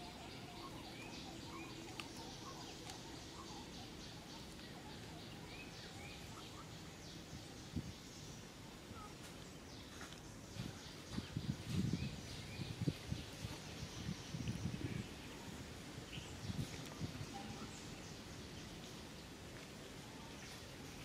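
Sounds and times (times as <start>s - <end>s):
bird chirps: 0.0s - 9.2s
steady background hiss: 0.0s - 21.0s.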